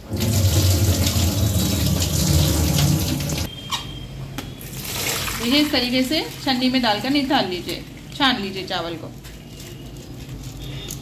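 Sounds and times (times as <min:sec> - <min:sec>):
water gushing from a pot: 0:00.0 - 0:03.5, 0:04.6 - 0:08.2.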